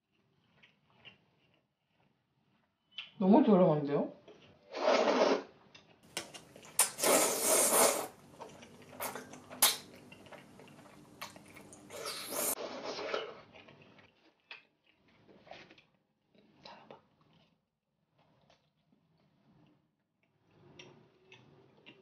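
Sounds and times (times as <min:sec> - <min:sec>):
wet mouth sounds: 0:06.2 - 0:12.6
noodles slurped: 0:06.2 - 0:14.0.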